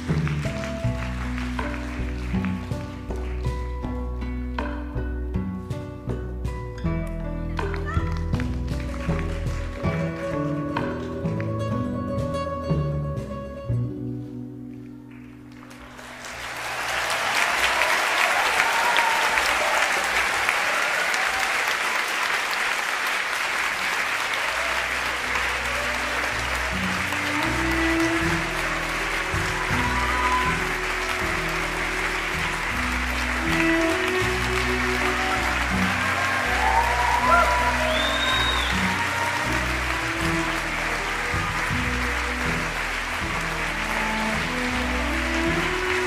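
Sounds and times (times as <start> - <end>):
audience applauding: 0.0 - 4.0, 7.6 - 12.2, 14.8 - 46.0
music with low bass notes: 0.0 - 15.1, 25.3 - 46.0.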